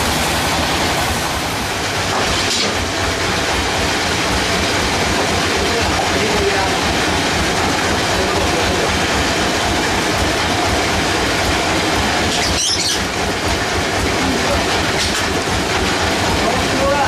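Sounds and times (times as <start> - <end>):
sawmill machinery rattling: 0.0 - 17.0
high squeal: 12.3 - 13.1.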